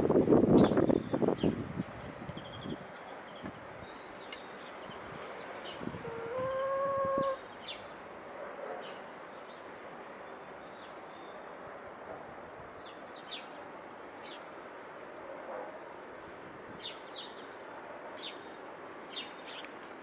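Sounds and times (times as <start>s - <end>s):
small birds chirping: 0.6s - 6.6s, 16.8s - 19.8s
hen call: 6.0s - 7.4s.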